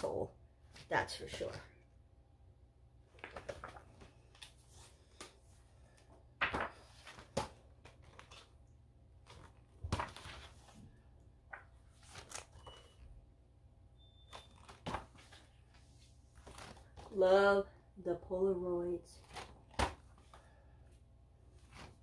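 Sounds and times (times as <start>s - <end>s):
paper rustling: 3.1s - 8.6s, 9.2s - 13.0s, 14.3s - 17.2s, 21.5s - 22.0s.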